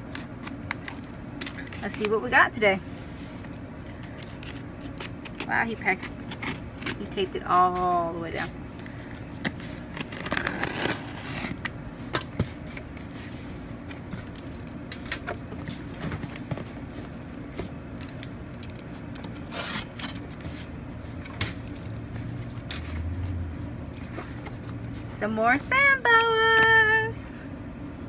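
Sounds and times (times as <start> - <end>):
packing tape ripping off box: 0.0 - 2.1, 4.1 - 7.1, 9.4 - 11.7, 19.3 - 20.4.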